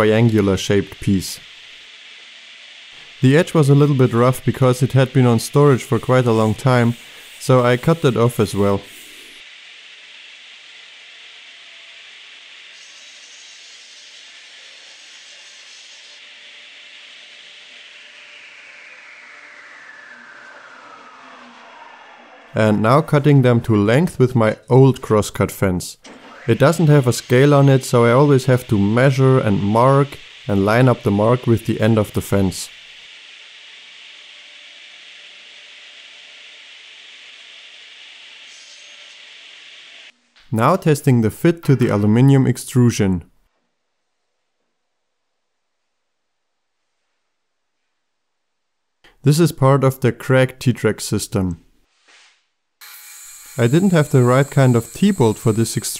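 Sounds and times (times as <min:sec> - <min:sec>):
steady hiss: 0:00.0 - 0:19.7, 0:26.5 - 0:41.1, 0:53.4 - 0:55.9
table saw running: 0:00.0 - 0:23.8, 0:26.0 - 0:40.1, 0:52.8 - 0:55.9.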